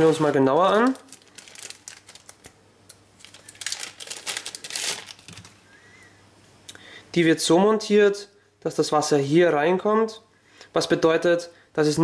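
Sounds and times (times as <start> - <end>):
plastic packaging crinkling: 0.0 - 5.6.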